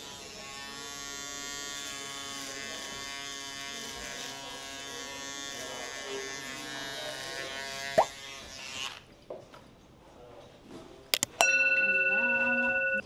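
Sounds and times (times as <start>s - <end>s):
electric hair clipper buzzing: 0.0s - 9.1s.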